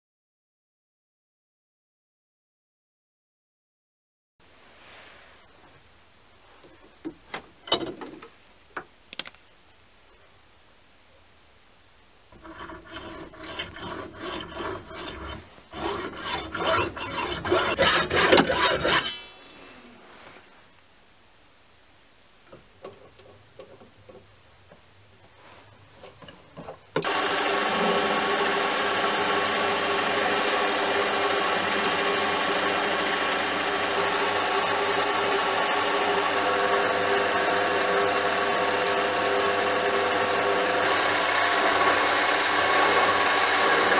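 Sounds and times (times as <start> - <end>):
hacksaw cutting metal: 12.4 - 20.0, 27.0 - 43.9
lathe running: 12.4 - 20.0, 27.0 - 43.9.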